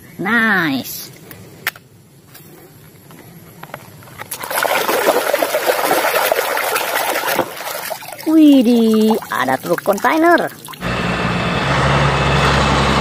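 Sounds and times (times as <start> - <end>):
water splashing and sloshing: 4.0 - 10.8.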